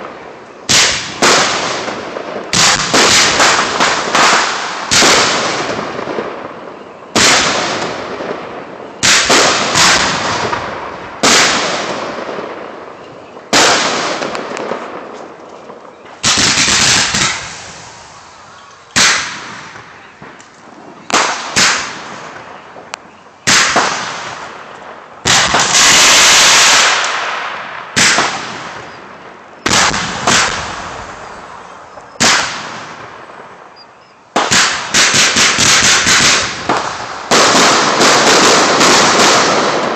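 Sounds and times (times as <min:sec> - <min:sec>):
firework hiss: 0:16.2 - 0:22.4, 0:25.3 - 0:28.8.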